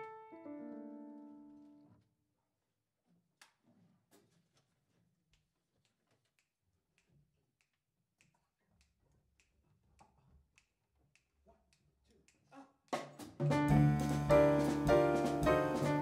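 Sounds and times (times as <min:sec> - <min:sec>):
jazz quartet playing: 0:13.4 - 0:16.0.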